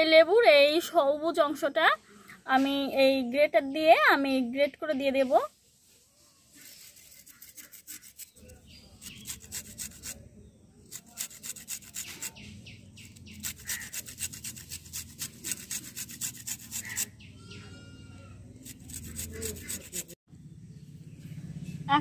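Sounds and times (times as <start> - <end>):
lemon rind grated on metal grater: 6.6 - 10.2, 10.9 - 12.4, 13.1 - 17.1, 18.6 - 20.2.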